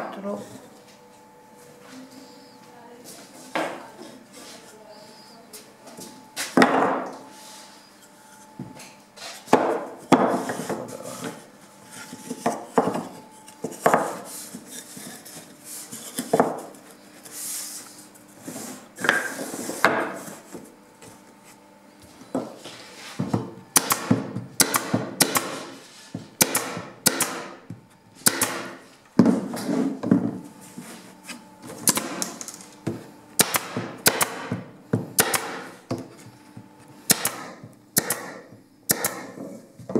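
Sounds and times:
pneumatic stapler firing: 23.8s - 25.7s, 26.4s - 27.6s, 28.2s - 28.8s, 33.4s - 34.5s, 35.2s - 35.7s, 37.1s - 39.4s.

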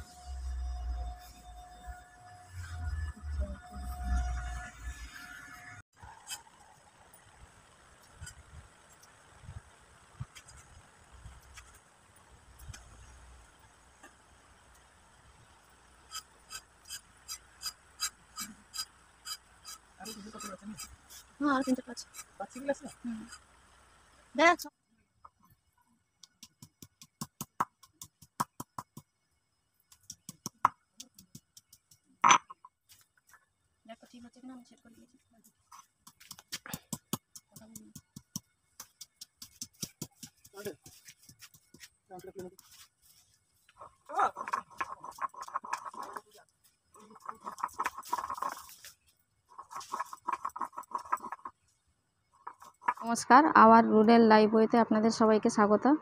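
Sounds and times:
stone scraping on stone slab: 43.8s - 46.3s, 47.0s - 48.9s, 49.6s - 51.6s.

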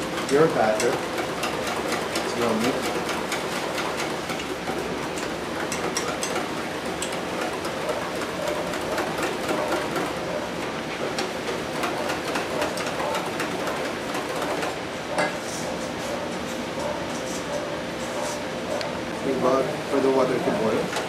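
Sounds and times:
whisk clicking and scraping bowl: 0.0s - 10.1s.

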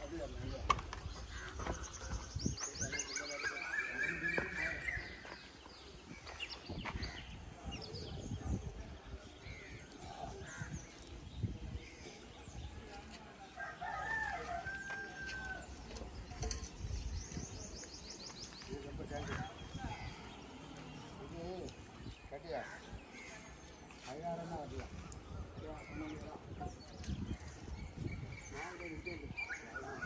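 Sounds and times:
birds calling: 0.0s - 30.0s.

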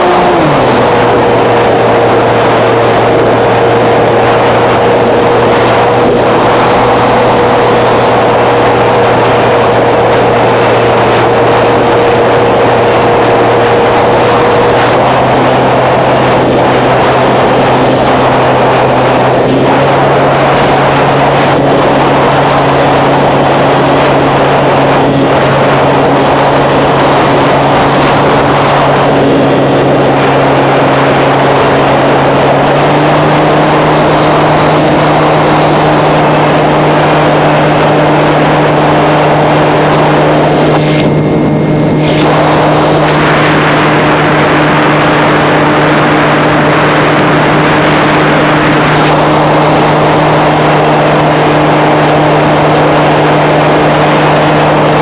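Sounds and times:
electric motor and propeller: 0.0s - 55.0s
wind noise rushing: 0.0s - 55.0s.

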